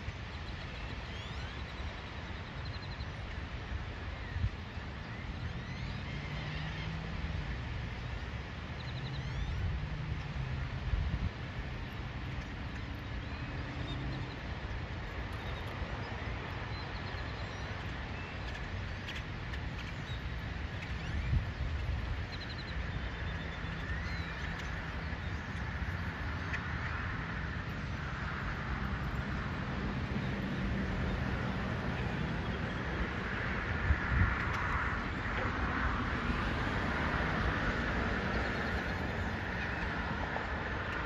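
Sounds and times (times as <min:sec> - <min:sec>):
bird chirps and trills: 0:00.1 - 0:03.4, 0:08.6 - 0:10.6, 0:11.8 - 0:27.1, 0:38.1 - 0:41.0.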